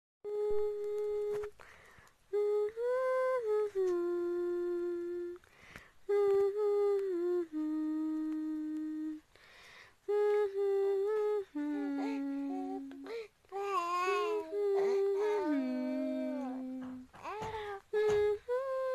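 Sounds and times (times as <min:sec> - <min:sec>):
woman humming a lullaby: 0:00.2 - 0:01.6, 0:02.3 - 0:05.4, 0:06.1 - 0:09.3, 0:10.0 - 0:18.9
breaths: 0:01.6 - 0:02.2, 0:05.4 - 0:06.0, 0:09.3 - 0:10.0, 0:11.9 - 0:13.4, 0:17.1 - 0:18.0
baby vocalizing: 0:11.8 - 0:17.8.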